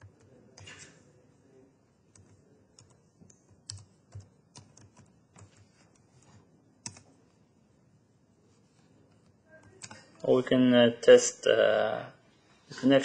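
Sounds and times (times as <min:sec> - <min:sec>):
faint keyboard typing: 0:00.0 - 0:01.1, 0:02.0 - 0:07.4, 0:08.5 - 0:10.3.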